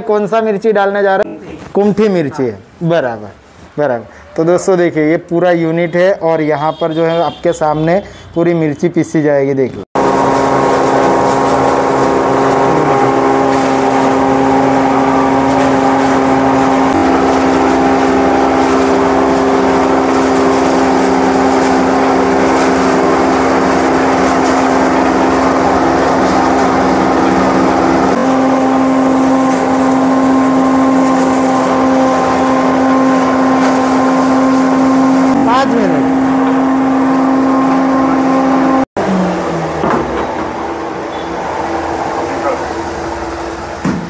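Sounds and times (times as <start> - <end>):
electric grinding mill running: 10.0 - 44.0.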